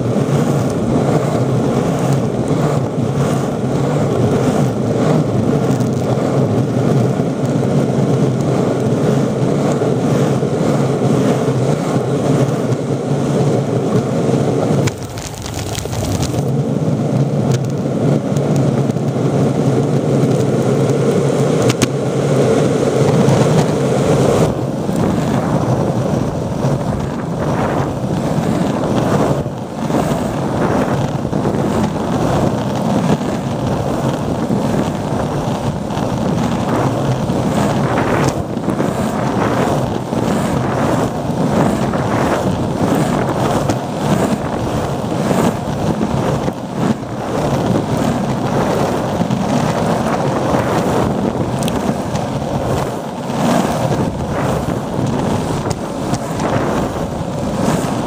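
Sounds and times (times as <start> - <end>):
longboard wheels rolling on asphalt: 0.0 - 58.0
wind buffeting microphone: 0.0 - 58.0.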